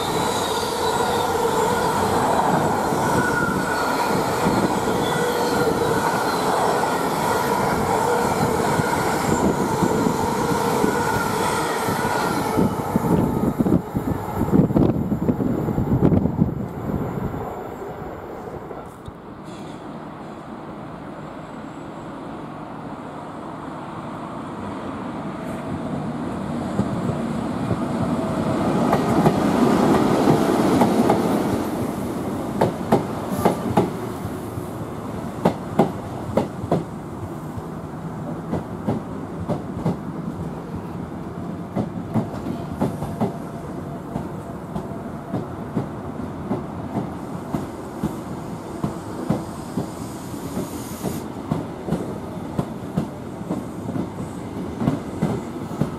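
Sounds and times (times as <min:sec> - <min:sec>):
electric train rumbling past: 0:00.0 - 0:55.9.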